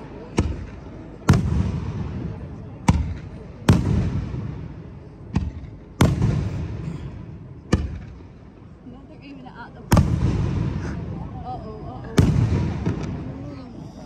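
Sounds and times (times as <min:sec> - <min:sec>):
low rolling echo: 0:00.0 - 0:14.0
firework bangs: 0:00.4 - 0:08.3, 0:09.9 - 0:11.3, 0:12.0 - 0:13.4.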